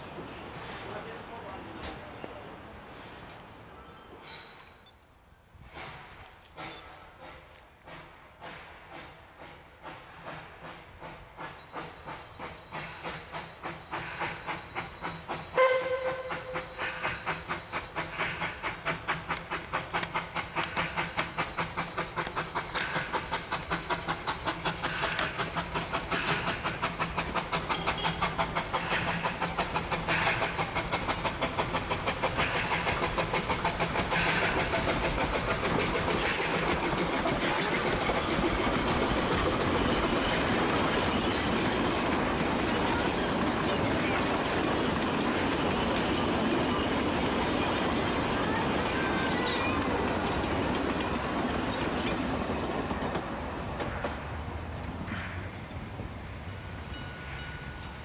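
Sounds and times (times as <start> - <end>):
steam hissing: 5.6 - 54.6
steam locomotive exhaust chuffs: 5.6 - 58.0
steam whistle blast: 15.5 - 16.8.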